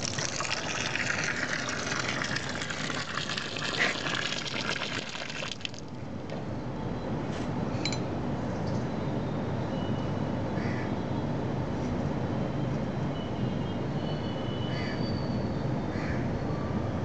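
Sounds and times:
water gushing into steel bowl: 0:00.0 - 0:05.9.

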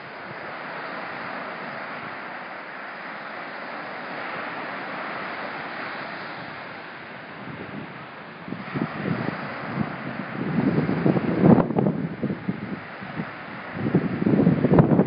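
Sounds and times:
surf washing up a beach: 0:00.0 - 0:15.0
wind on microphone: 0:00.0 - 0:15.0.

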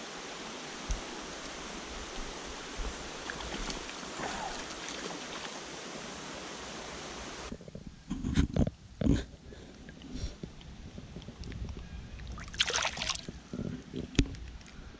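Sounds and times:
creek water running over rocks: 0:00.0 - 0:07.8, 0:12.3 - 0:13.3
fish splashing at surface: 0:12.4 - 0:13.2.

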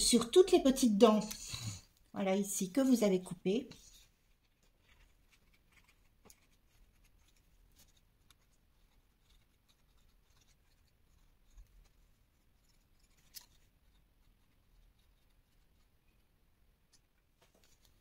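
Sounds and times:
paper rustling: 0:03.8 - 0:15.9, 0:16.9 - 0:18.0.

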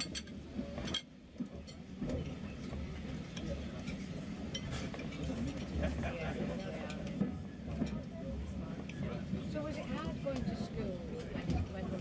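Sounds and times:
cutlery and glassware clinking: 0:00.0 - 0:07.1.

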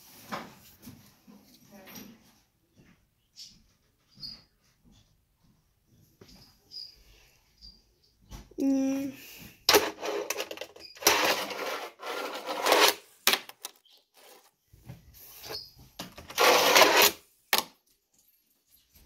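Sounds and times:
small wheels rolling on ramp: 0:09.7 - 0:13.0, 0:15.5 - 0:17.2.

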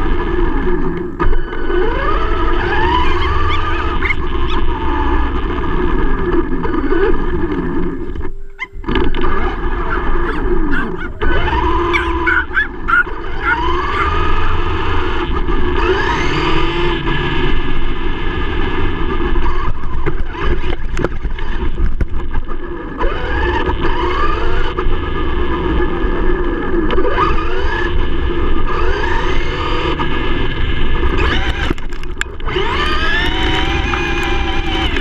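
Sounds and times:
electric motor whining: 0:00.0 - 0:35.0
tyres rumbling on rough pavement: 0:00.0 - 0:35.0
ticks of grit and stones: 0:31.1 - 0:35.0.

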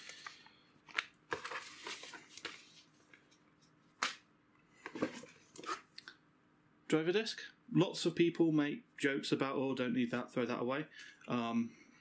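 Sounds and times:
paper and cardboard rustling: 0:00.9 - 0:03.4.

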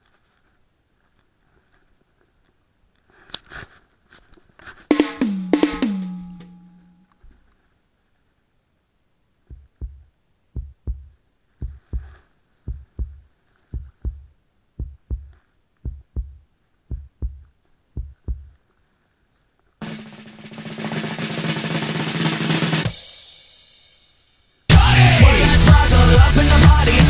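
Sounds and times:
heartbeat thuds: 0:09.5 - 0:18.6.

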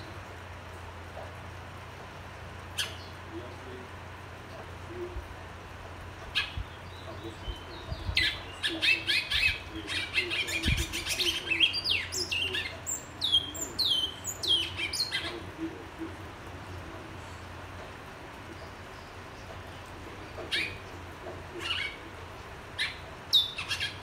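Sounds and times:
finch singing whistled phrases: 0:06.4 - 0:15.4, 0:22.8 - 0:24.0.

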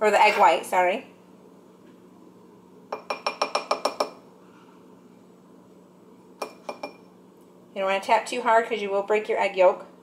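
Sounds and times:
spoon tapping ceramic ramekin: 0:02.9 - 0:04.2, 0:06.4 - 0:07.1.

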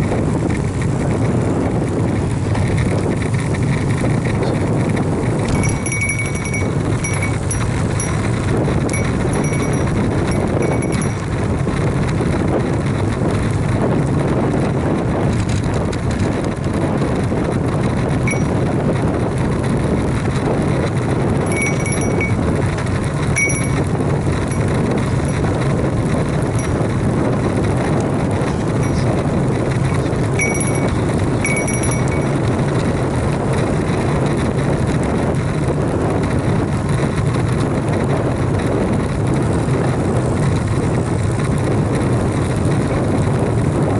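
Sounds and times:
bike tyre road noise: 0:00.0 - 0:43.9
wind rushing over microphone: 0:00.0 - 0:43.9.

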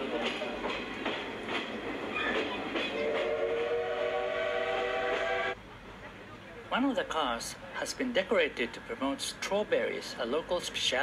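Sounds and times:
steam whistle blast: 0:02.9 - 0:05.6.

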